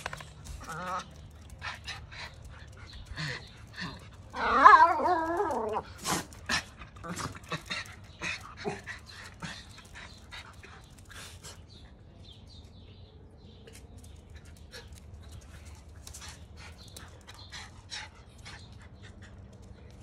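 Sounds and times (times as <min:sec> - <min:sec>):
dogs panting: 0:00.0 - 0:04.5, 0:05.8 - 0:20.0
dogs whimpering: 0:00.6 - 0:06.0.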